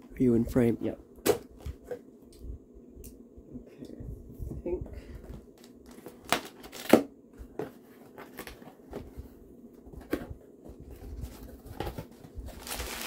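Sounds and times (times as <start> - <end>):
packing tape ripping: 5.8 - 7.0, 12.5 - 13.0.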